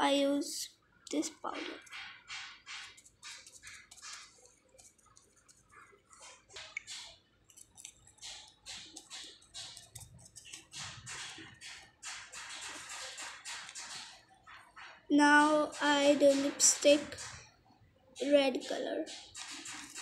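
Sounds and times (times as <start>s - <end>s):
fingers rubbing on taped paper: 1.5s - 14.1s, 19.1s - 20.0s.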